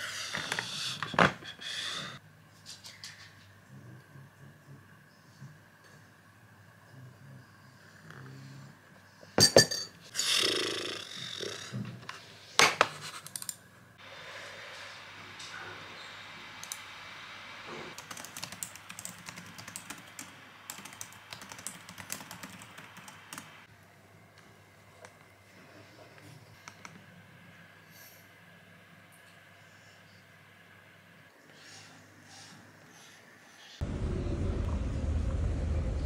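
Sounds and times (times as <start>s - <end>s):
faint steady hiss: 13.7s - 35.2s
laptop keyboard typing: 18.0s - 23.5s.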